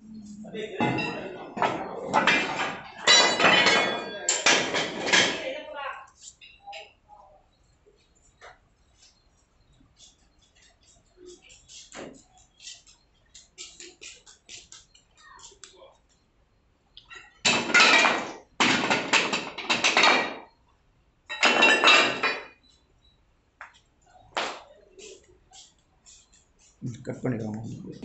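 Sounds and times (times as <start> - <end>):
metal clatter and scraping: 0.8 - 5.6.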